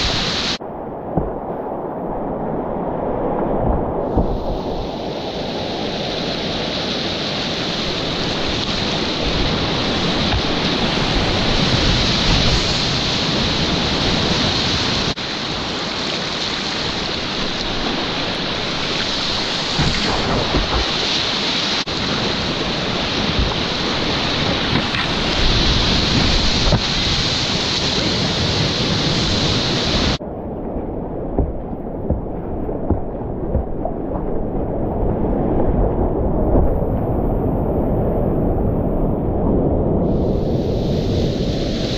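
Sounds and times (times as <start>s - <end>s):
calmer water: 0.0s - 41.9s
whitewater rapids rushing: 4.1s - 30.2s.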